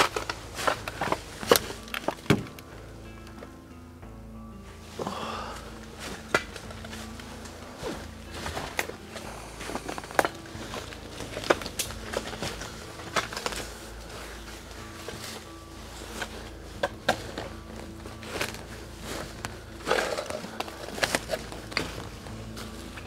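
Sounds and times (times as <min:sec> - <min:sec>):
twigs snapping and crackling: 0:00.0 - 0:02.6, 0:06.0 - 0:14.3, 0:16.1 - 0:23.0
footsteps on leaves and twigs: 0:05.0 - 0:23.0.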